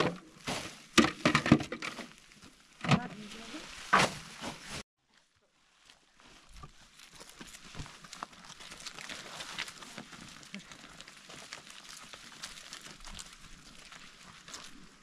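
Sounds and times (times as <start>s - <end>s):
footsteps on stony ground: 5.8s - 15.0s
plastic bags rustling: 6.5s - 15.0s.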